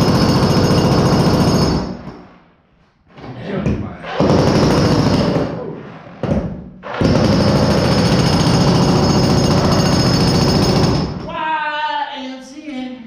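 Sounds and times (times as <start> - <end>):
jackhammer chiselling concrete: 0.0 - 1.9, 4.2 - 5.5, 6.9 - 11.2.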